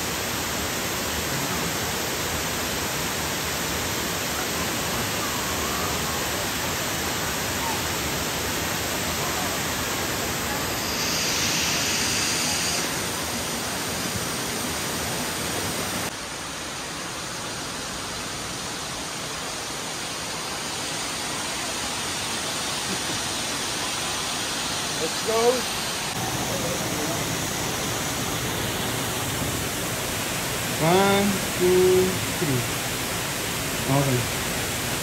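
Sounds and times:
river water rushing: 0.0 - 35.0.

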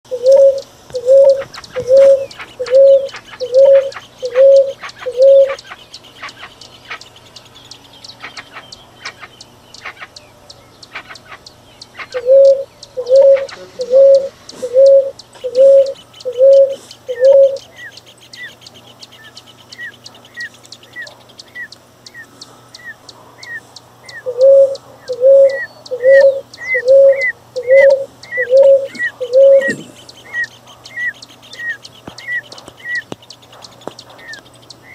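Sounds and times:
bird repeating low hollow note: 0.1 - 5.6, 12.1 - 17.6, 22.8 - 30.5.

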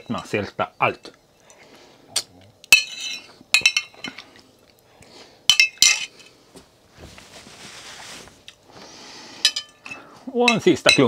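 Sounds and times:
metal spoon clinking on ceramic bowl: 2.7 - 4.1, 9.5 - 11.0
cloth rustling: 6.8 - 8.5.

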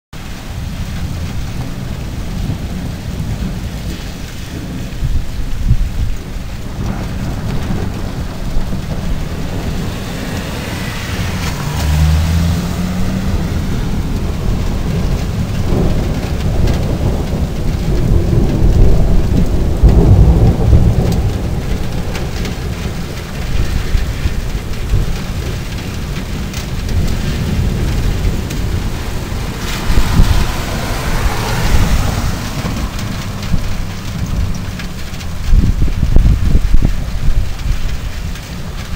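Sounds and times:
heavy rain on a street: 0.2 - 38.9
thunder rumbling: 0.2 - 38.9.

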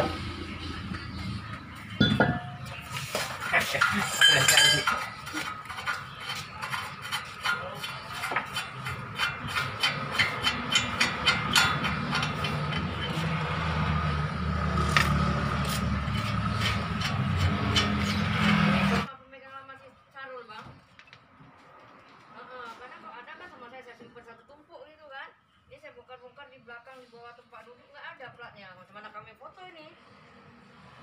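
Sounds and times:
hand tool clicking on metal: 3.8 - 13.4.

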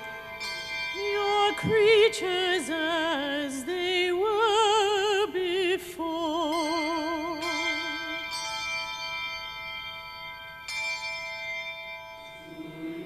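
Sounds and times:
person singing a hymn: 0.0 - 8.4, 12.4 - 13.0
sustained ringing accompaniment tones: 0.0 - 13.0.

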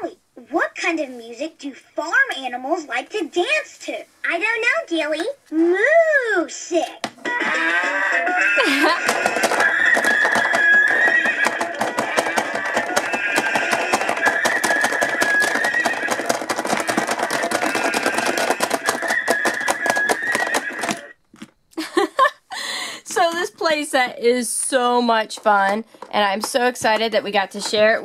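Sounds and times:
tinny electronic toy music: 7.3 - 21.1.

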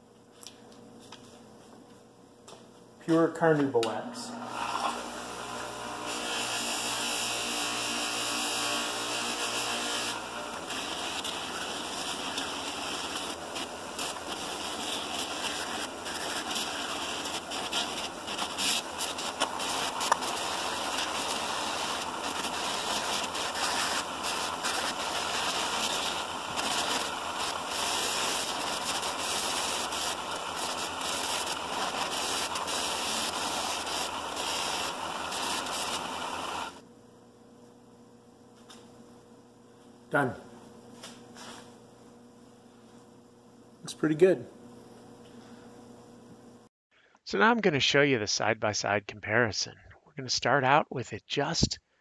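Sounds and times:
bench buffer rushing noise: 3.1 - 36.8.

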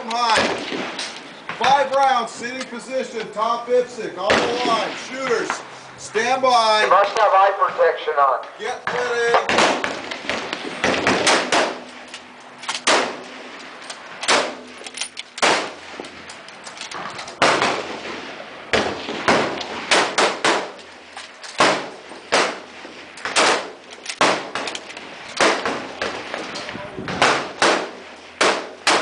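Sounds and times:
rifle shots: 0.2 - 1.3, 4.2 - 5.5, 9.2 - 16.2, 17.3 - 29.0.

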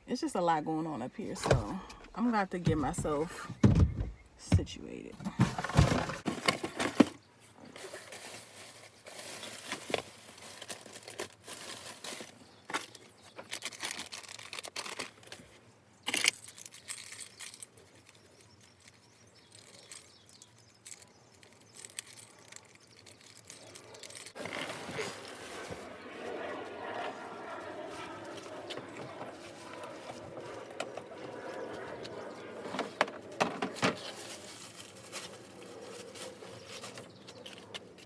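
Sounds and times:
packaging rustling and crinkling: 7.8 - 25.9, 33.7 - 38.0.

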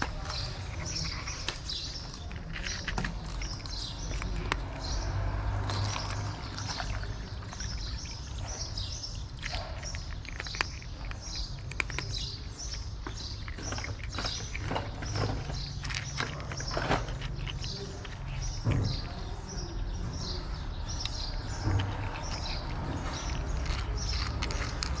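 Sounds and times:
cat crunching dry kibble: 0.0 - 19.7, 20.6 - 25.0
small birds chirping: 0.0 - 25.0
water pouring into plastic cup: 5.5 - 8.0.

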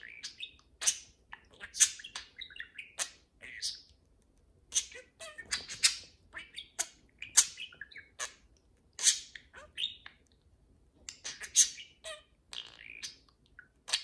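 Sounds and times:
budgerigars chattering: 0.0 - 3.8, 4.7 - 8.4.

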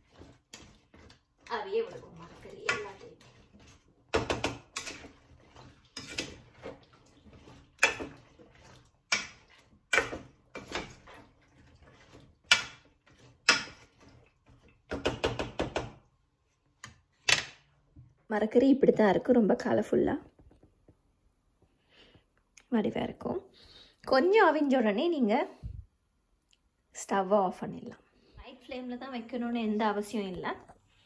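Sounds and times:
spoon scraping saucepan: 0.0 - 15.5.

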